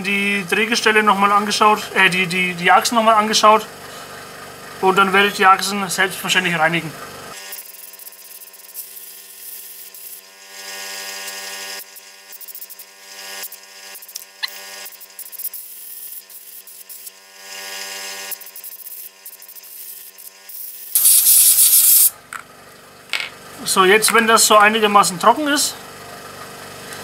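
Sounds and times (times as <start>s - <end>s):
airbrush air bursts hissing: 21.0s - 22.1s.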